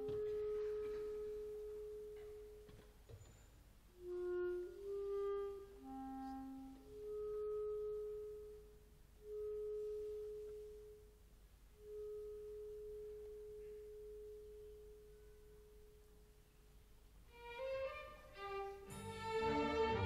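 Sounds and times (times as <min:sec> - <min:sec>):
solo clarinet note: 0:04.0 - 0:11.1.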